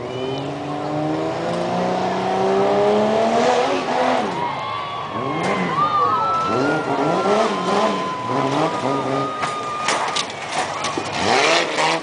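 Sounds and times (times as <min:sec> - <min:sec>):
truck engine revving: 0:00.0 - 0:04.4, 0:06.4 - 0:12.0.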